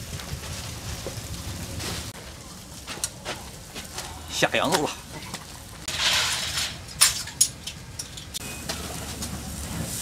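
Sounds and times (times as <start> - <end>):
steady low rumble: 0.0 - 4.3.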